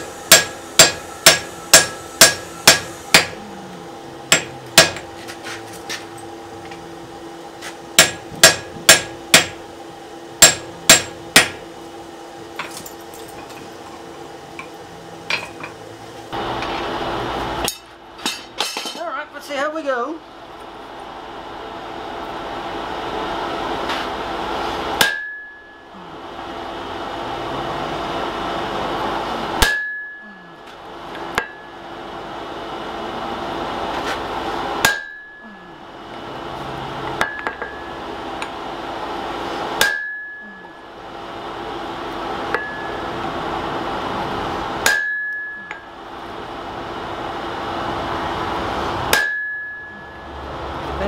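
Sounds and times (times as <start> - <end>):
hammer clanging on hot punch: 0.0 - 3.4, 4.3 - 5.1, 7.9 - 9.6, 10.4 - 11.6, 25.0 - 25.7, 29.6 - 30.2, 34.8 - 35.4, 37.2 - 37.8, 39.7 - 40.4, 42.5 - 43.0, 44.8 - 45.9, 49.1 - 49.9.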